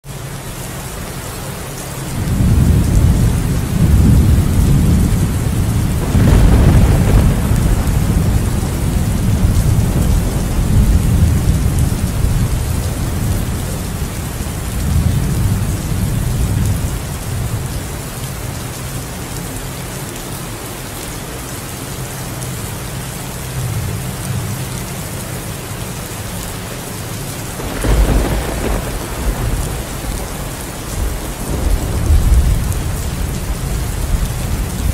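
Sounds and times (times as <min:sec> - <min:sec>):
heavy rain: 0:00.0 - 0:34.9
rolling thunder: 0:02.2 - 0:18.1, 0:27.5 - 0:34.9
sharp thunder peal: 0:02.5 - 0:12.8, 0:27.6 - 0:34.9.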